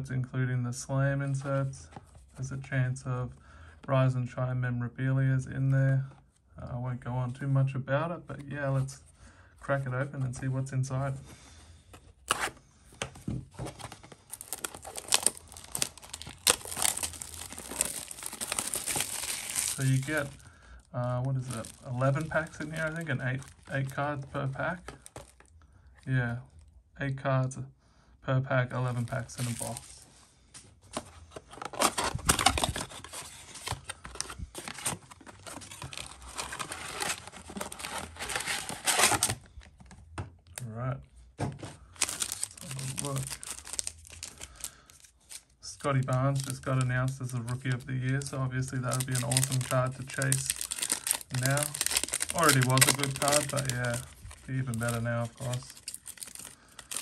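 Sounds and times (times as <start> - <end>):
plastic wrapping crinkling and tearing: 13.6 - 25.6, 28.9 - 30.0, 31.3 - 39.8, 41.9 - 57.0.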